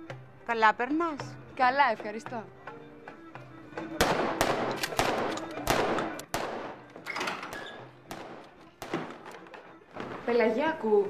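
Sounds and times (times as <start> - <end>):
gunshots: 4.0 - 6.9, 7.5 - 9.4.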